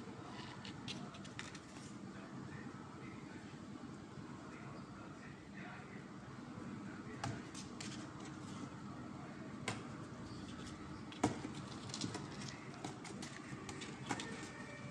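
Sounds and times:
low background noise: 0.0s - 14.9s
kittens scratching on cardboard: 0.2s - 2.0s, 7.4s - 8.8s, 10.4s - 14.9s.

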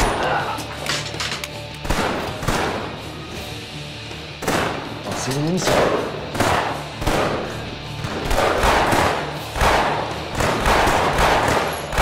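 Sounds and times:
dramatic background music: 0.0s - 12.0s
pistol shots with echo: 5.6s - 12.0s.

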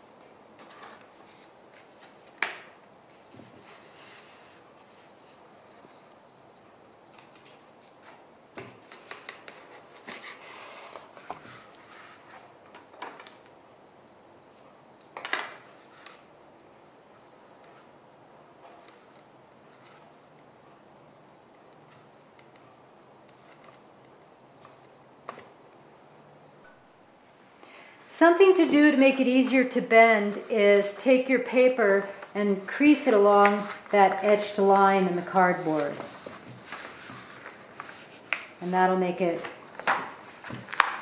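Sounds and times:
paper rustling: 0.1s - 6.1s, 31.8s - 41.0s.

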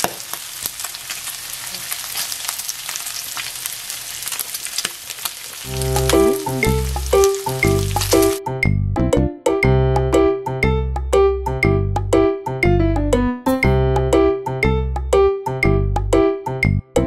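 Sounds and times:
pork sizzling in a frying pan: 0.0s - 8.4s
music: 5.7s - 17.0s.

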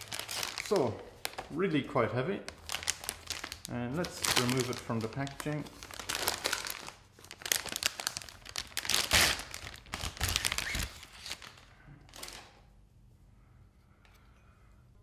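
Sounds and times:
plastic bag crinkling: 0.0s - 1.8s, 2.4s - 12.6s.

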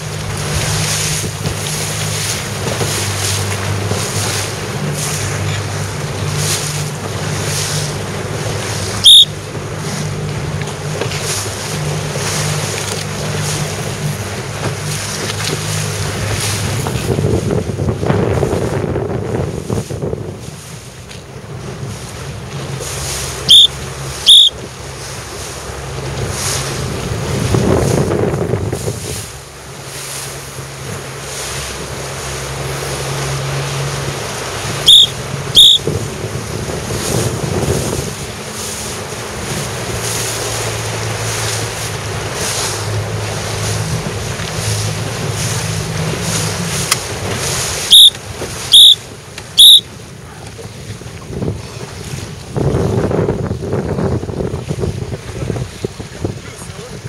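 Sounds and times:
outboard motor running: 0.0s - 57.0s
water rushing past: 0.0s - 57.0s
wind buffeting microphone: 0.0s - 57.0s
high-pitched beeps: 23.5s - 23.7s, 24.3s - 24.5s, 34.9s - 35.8s.

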